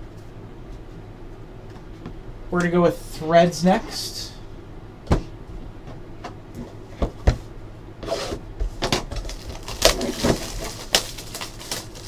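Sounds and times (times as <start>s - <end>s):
wrapper crinkling and tearing: 9.1s - 12.0s.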